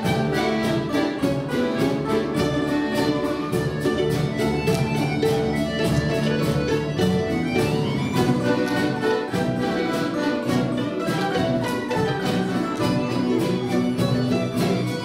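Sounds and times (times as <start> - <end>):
plucked string folk orchestra: 0.0 - 15.0
button accordion: 0.4 - 11.9.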